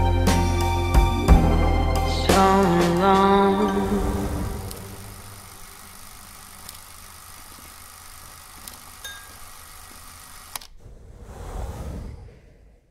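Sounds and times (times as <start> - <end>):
film hiss: 4.0 - 10.7
film clicks: 4.6 - 10.8
low rumble: 10.8 - 12.9.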